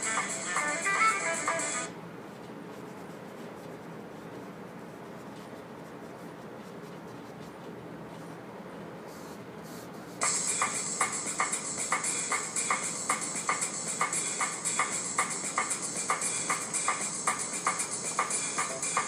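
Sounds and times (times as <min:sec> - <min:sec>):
paintbrush brushing on canvas: 0:02.2 - 0:08.4.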